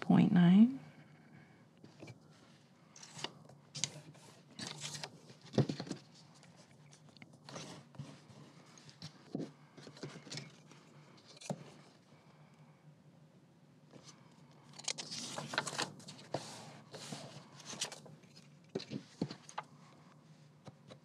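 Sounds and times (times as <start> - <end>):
paper rustling and scraping: 2.0 - 11.8, 14.7 - 19.7.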